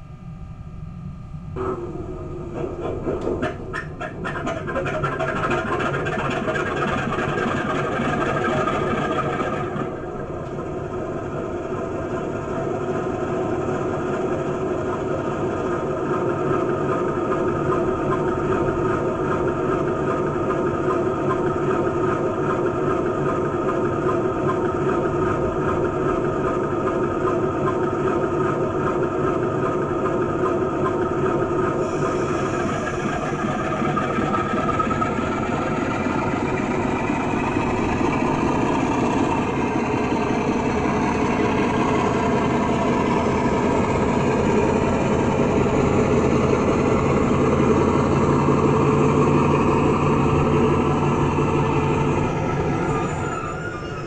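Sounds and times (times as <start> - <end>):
diesel engine idling: 30.6 - 53.3.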